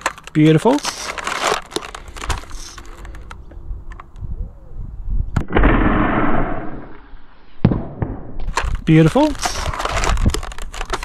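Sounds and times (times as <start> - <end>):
burst of blaster noise: 5.4 - 7.0
sharp crack: 5.4 - 11.0.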